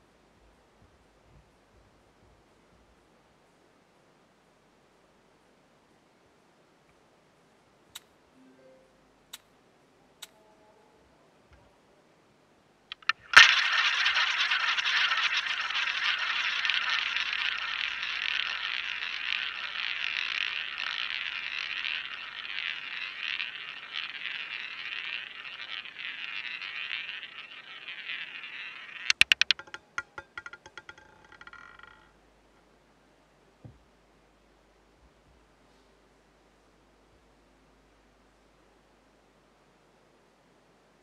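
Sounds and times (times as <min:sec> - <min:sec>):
roulette ball launch click: 0:12.9 - 0:32.1
ball bouncing into pocket: 0:12.9 - 0:32.2
roulette ball rolling: 0:12.9 - 0:32.7.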